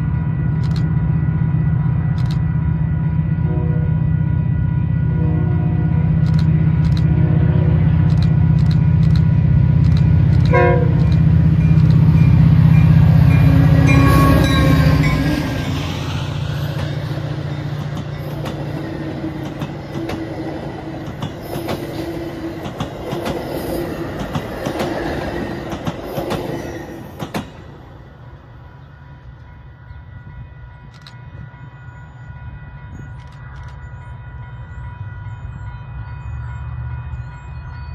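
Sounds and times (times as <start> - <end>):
diesel locomotive engine: 0.0 - 37.9
train horn: 3.0 - 6.2, 6.9 - 8.1, 10.4 - 22.6, 28.4 - 37.9
train cars clattering over rails: 8.0 - 27.8
crossing bell ringing: 8.4 - 23.1, 28.3 - 37.9.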